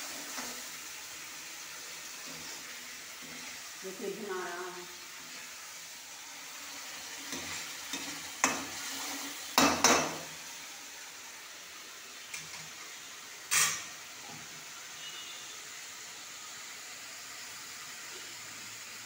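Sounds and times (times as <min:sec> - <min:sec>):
food sizzling in a pan: 0:00.0 - 0:19.0
metal spoon clanking on pan: 0:07.3 - 0:08.8, 0:09.6 - 0:10.2, 0:13.5 - 0:13.9.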